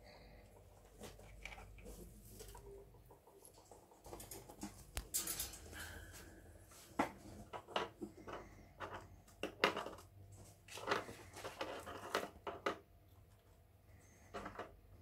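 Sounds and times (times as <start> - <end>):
rats scrabbling in wire cage: 0.9 - 6.2.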